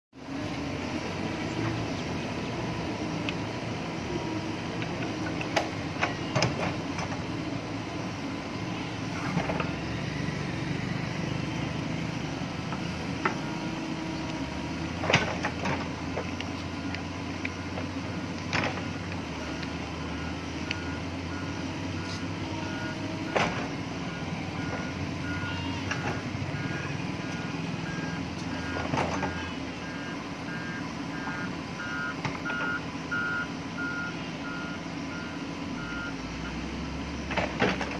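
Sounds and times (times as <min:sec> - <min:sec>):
diesel engine running: 0:00.1 - 0:37.9
reversing alarm beeping: 0:16.4 - 0:36.7.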